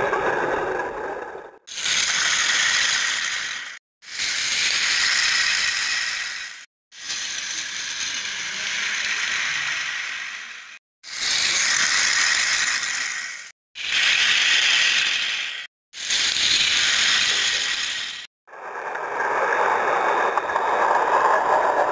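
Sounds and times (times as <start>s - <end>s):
toy train whirring and rattling: 0.0s - 21.9s.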